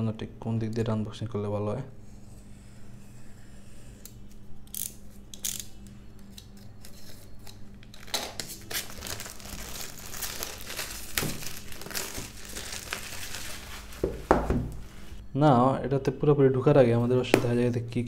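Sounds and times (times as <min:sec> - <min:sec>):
plastic film crinkling: 0:07.8 - 0:15.2
blade slitting plastic wrap: 0:07.9 - 0:15.2.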